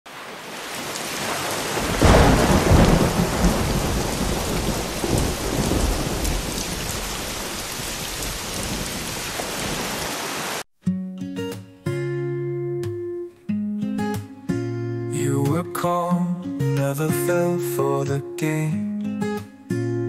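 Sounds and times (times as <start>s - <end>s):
steady rain falling: 0.1s - 10.6s
thunder rumbling: 0.9s - 10.0s.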